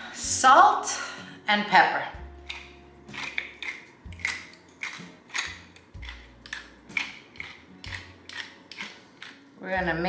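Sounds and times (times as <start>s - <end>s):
grinder crunching seasoning: 2.5s - 9.5s.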